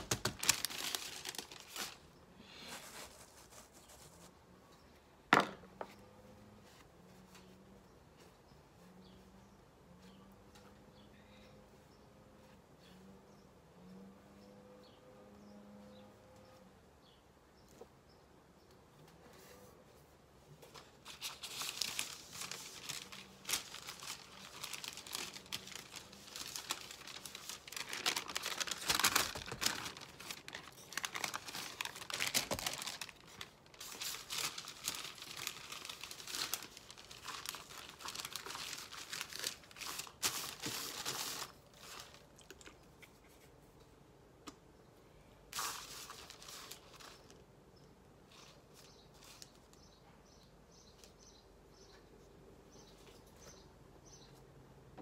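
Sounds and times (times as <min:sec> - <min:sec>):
crinkling paper: 0:00.0 - 0:04.3, 0:20.6 - 0:43.4, 0:45.5 - 0:47.5, 0:48.3 - 0:49.8.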